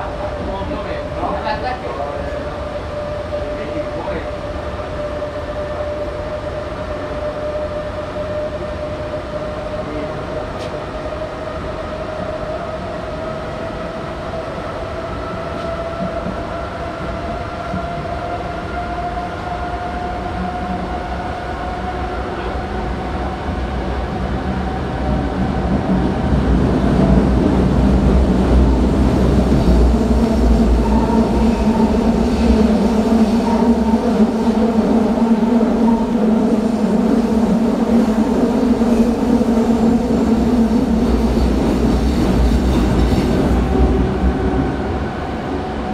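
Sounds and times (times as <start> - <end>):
train rolling rumble: 0.0 - 45.9
train whine rising in pitch: 26.5 - 45.9.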